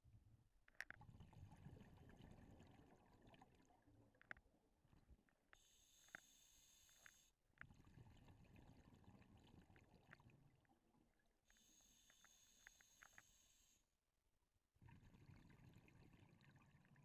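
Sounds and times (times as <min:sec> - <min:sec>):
faint clicks: 0:05.5 - 0:07.7, 0:11.5 - 0:13.7.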